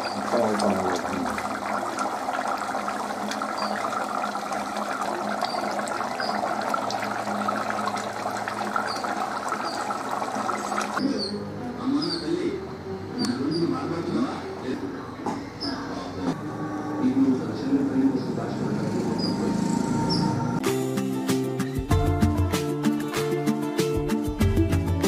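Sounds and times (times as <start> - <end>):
curry bubbling in a pot: 0.0 - 11.0
birds chirping: 0.0 - 12.6, 18.9 - 20.6.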